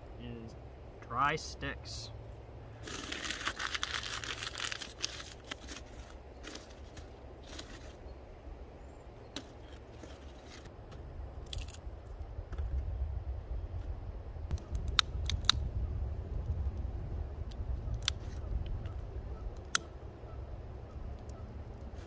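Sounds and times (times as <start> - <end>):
dry twigs snapping: 2.8 - 8.0
paper crinkling: 2.8 - 8.0.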